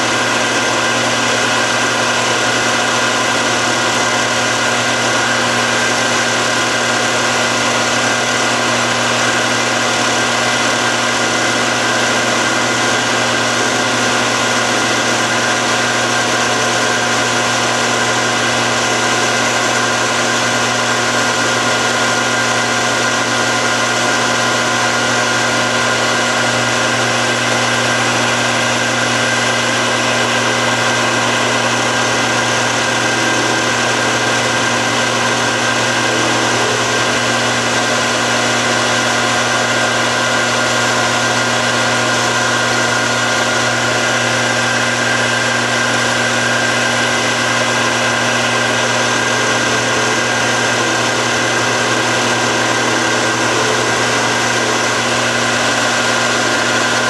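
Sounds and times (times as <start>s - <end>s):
lathe cutting metal: 0.0s - 57.0s
metal lathe motor humming: 0.0s - 57.0s
whining tones: 25.2s - 57.0s.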